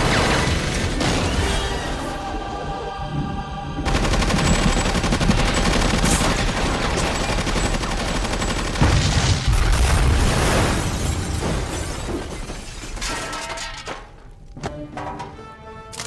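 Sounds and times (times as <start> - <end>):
action film music: 0.0 - 9.0, 14.5 - 16.0
machine-gun fire: 3.9 - 10.0.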